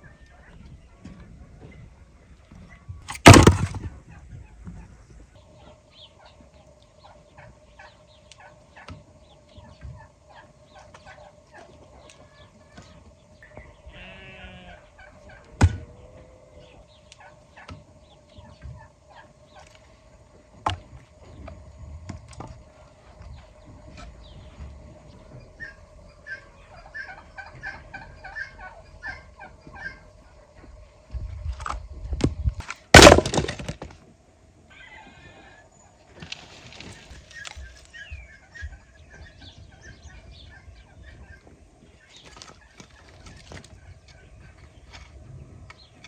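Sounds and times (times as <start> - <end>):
poultry call: 9.5 - 19.8, 25.3 - 30.5, 34.7 - 35.7.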